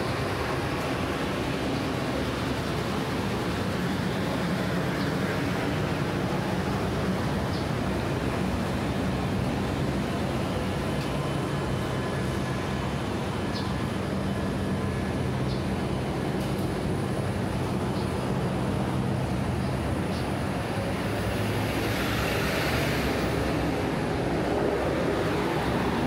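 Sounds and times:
street traffic: 0.0s - 26.0s.

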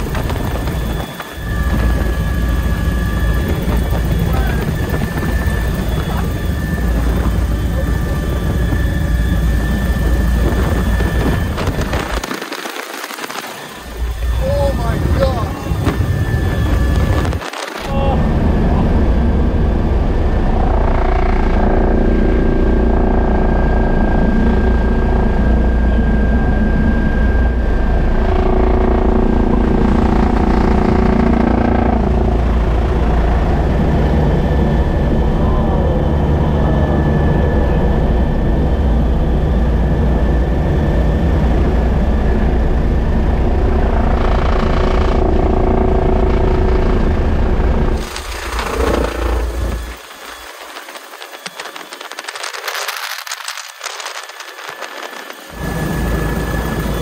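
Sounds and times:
wind buffeting on microphone: 0.0s - 22.2s
helicopter rotor and turbine din: 0.0s - 57.0s.

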